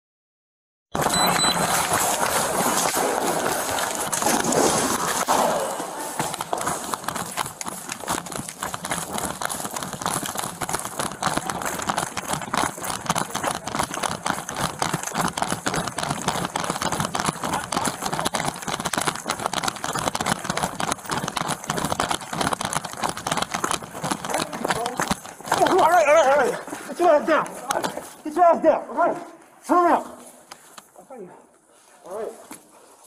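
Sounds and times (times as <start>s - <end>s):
running footsteps on pavement: 1.0s - 31.0s
gear rattling: 6.2s - 26.6s.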